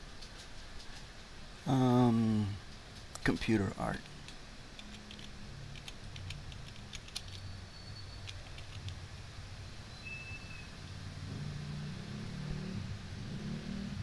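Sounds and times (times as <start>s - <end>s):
low steady hum: 0.0s - 14.0s
keyboard keys clicking: 4.8s - 7.4s, 8.2s - 9.0s.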